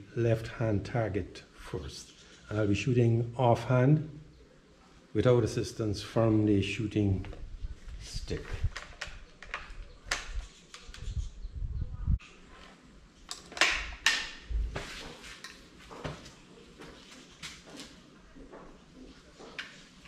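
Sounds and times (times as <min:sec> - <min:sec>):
air rifle clicks and clacks: 0:08.6 - 0:11.0, 0:13.2 - 0:14.5.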